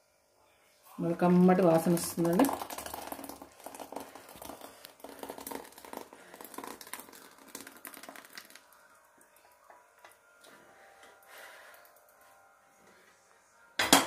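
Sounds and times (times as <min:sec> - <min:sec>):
thick liquid pouring into bowl: 0:01.6 - 0:09.5.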